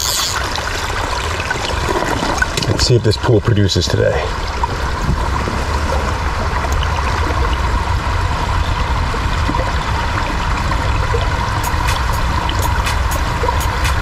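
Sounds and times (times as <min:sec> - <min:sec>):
brook trickling over rocks: 0:00.0 - 0:14.0.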